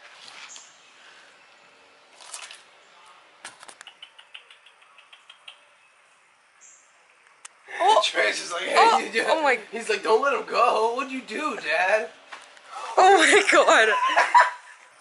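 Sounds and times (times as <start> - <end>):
rustle: 0.0 - 3.9
small animal chirping: 3.7 - 5.8.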